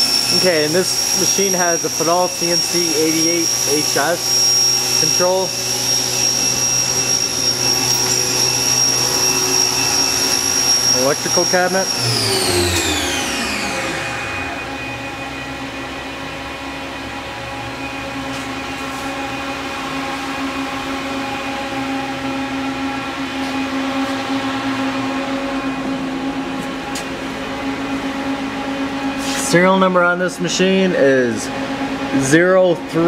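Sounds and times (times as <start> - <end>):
machine electrical and fan hum: 0.0 - 33.0
machine whine falling in pitch: 0.0 - 33.0.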